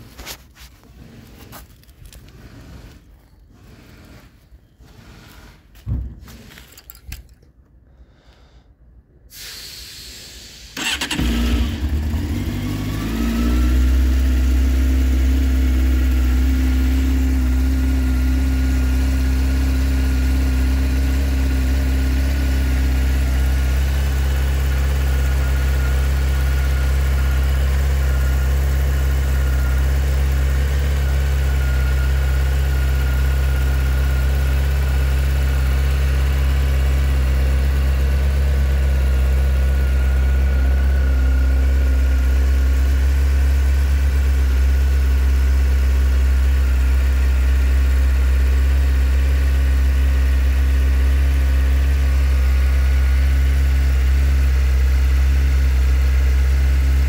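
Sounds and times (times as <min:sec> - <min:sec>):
motorcycle starter cranking: 0:10.8 - 0:13.0
motorcycle engine idling: 0:10.8 - 0:57.0.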